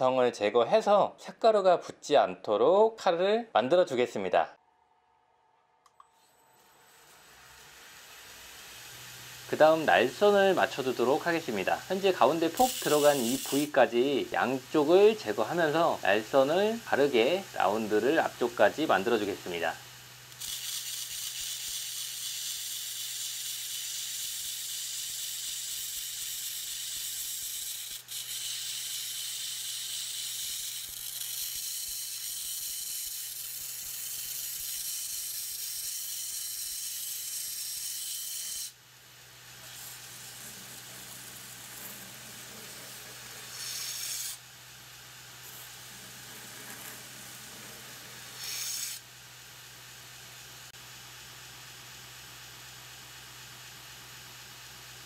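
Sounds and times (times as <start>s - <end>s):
belt grinder grinding steel: 6.1s - 49.1s
grinder motor hum: 6.2s - 38.5s, 39.2s - 49.1s.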